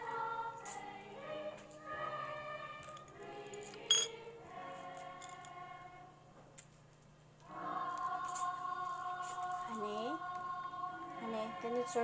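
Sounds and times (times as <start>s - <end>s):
choral music: 0.0s - 6.4s, 7.4s - 12.0s
small hard object clink: 3.6s - 4.2s.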